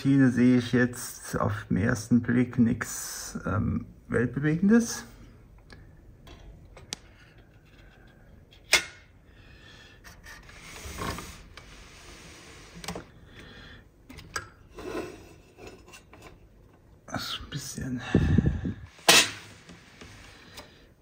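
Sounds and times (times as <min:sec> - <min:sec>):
rubbing scrapes: 0:10.2 - 0:12.8.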